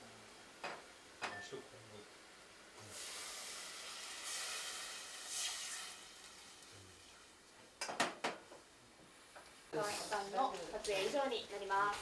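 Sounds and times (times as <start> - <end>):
liquid pouring into metal pot: 3.0 - 6.7.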